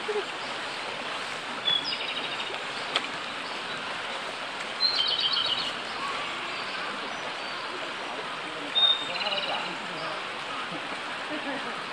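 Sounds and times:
bird singing trills: 4.8s - 5.7s, 8.7s - 10.1s.

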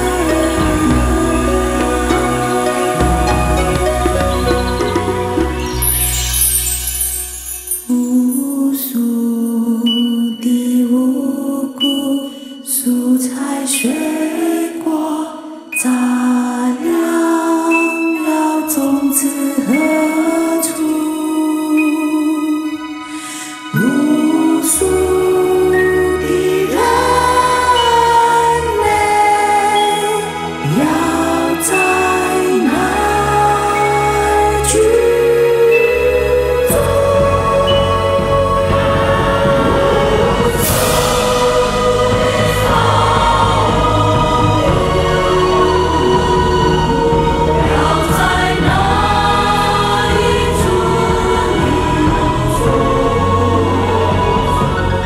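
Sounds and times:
choir singing a slow song: 0.0s - 7.0s, 7.9s - 55.0s
low bass: 0.0s - 7.8s, 30.6s - 55.0s
instrumental backing: 0.0s - 8.2s.

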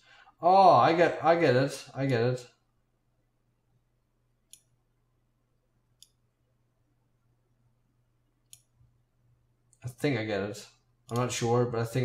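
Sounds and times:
faint low hum: 0.0s - 12.0s
computer mouse clicks: 4.5s - 4.8s, 6.0s - 6.2s, 8.4s - 8.8s, 11.1s - 11.3s.

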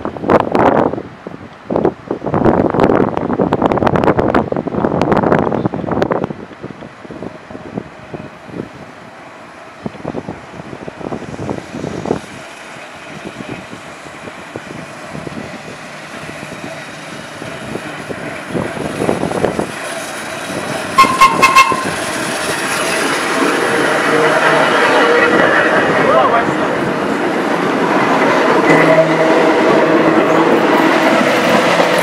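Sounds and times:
subway train running: 0.0s - 32.0s
short train horn toots: 21.0s - 21.9s.

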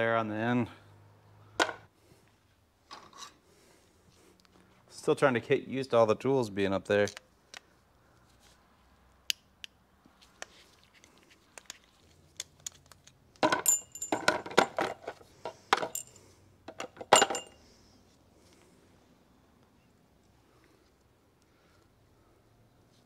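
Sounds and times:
metal parts clinking on workbench: 13.4s - 17.6s.

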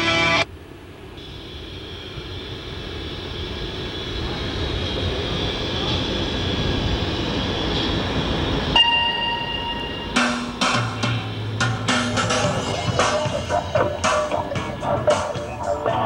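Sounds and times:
bus engine and tyre rumble: 0.0s - 8.9s, 10.4s - 16.0s
steady high tone: 7.3s - 16.0s.

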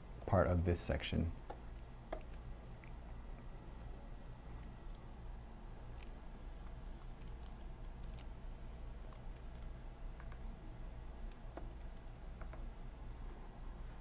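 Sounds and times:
low steady hum: 0.0s - 14.0s
laptop clicking: 11.2s - 12.7s.

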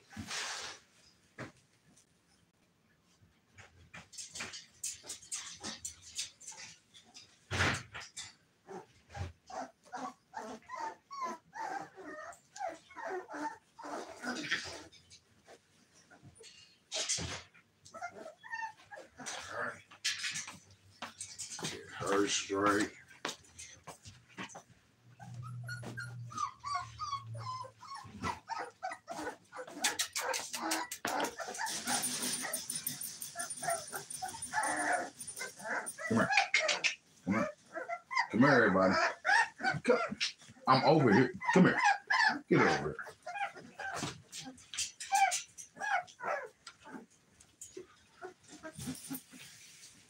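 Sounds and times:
puppies rustling scuffle: 0.0s - 2.2s, 18.8s - 38.0s, 43.0s - 50.0s
puppies whimpering and yipping: 8.7s - 19.5s, 25.1s - 49.6s.

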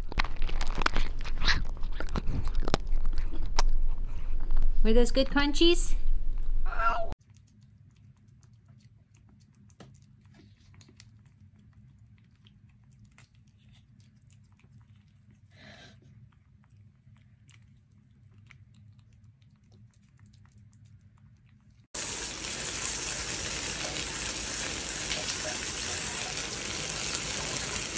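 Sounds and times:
kitten licking and chewing: 0.0s - 4.2s, 7.2s - 27.9s
low hum: 1.6s - 7.1s
shower head spraying water: 22.0s - 27.9s.

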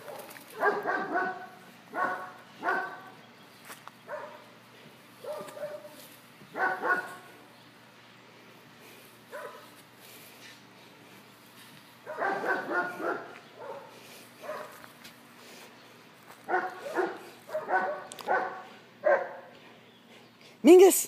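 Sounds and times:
dog barking: 0.0s - 3.2s, 4.1s - 4.4s, 5.2s - 7.3s, 9.3s - 9.7s, 12.0s - 14.8s, 16.5s - 19.5s.

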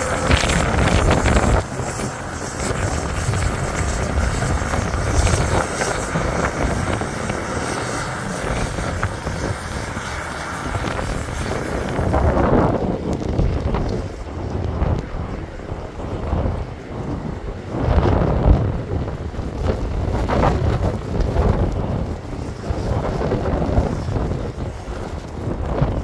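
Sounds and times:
snowblower throwing snow: 0.0s - 14.4s
track loader running: 0.0s - 26.0s
wind buffeting microphone: 0.0s - 26.0s.

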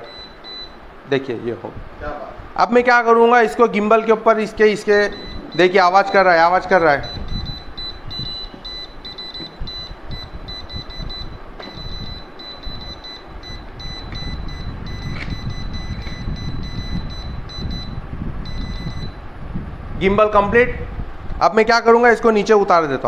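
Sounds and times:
rapid high-pitched alarm beeps: 0.0s - 0.9s, 5.0s - 19.2s
low handling rumble: 4.4s - 21.4s.

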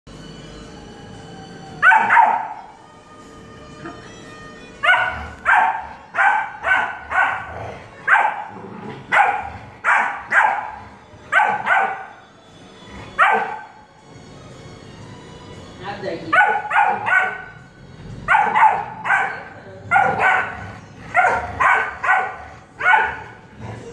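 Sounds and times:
dog barking: 1.8s - 2.6s, 4.8s - 12.2s, 13.2s - 13.7s, 16.3s - 17.5s, 18.3s - 23.4s.

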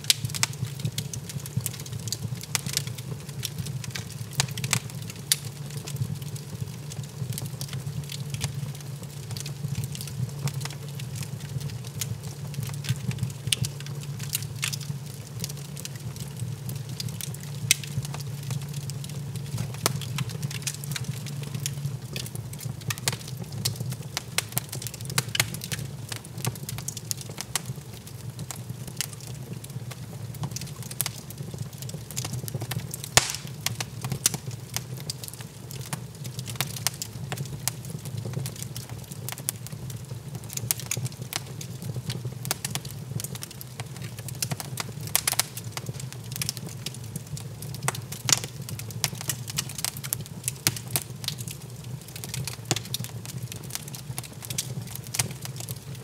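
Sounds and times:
log fire crackling and popping: 0.0s - 56.0s
low steady fire rumble: 0.0s - 56.0s.

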